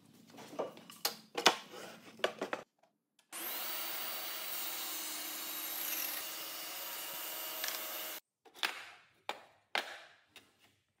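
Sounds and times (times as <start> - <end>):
table saw cutting wood: 3.4 - 8.2.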